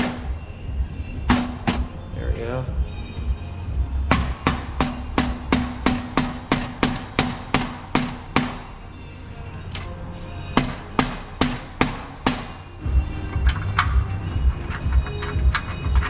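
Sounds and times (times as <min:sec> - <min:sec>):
rubber mallet hammering metal pipe: 0:01.3 - 0:01.9, 0:04.1 - 0:08.7, 0:10.6 - 0:12.6.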